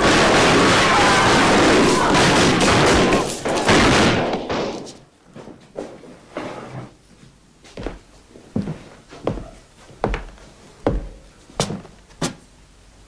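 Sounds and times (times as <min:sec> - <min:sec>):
many guns firing in a volley: 0:00.0 - 0:05.0.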